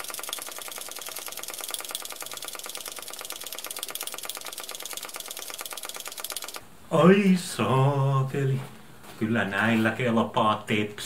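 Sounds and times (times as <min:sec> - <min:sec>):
hand air pump clicking: 0:00.0 - 0:06.6.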